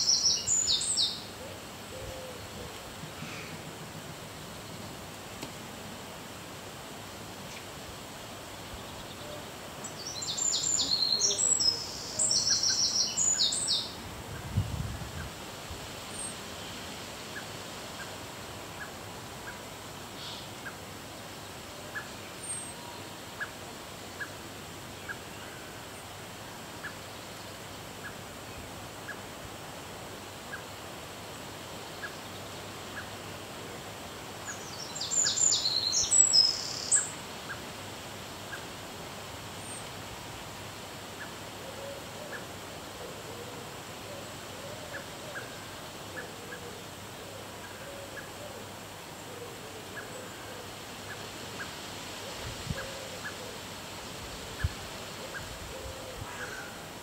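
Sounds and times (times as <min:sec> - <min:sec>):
faint soft ticks: 0:05.1 - 0:05.6.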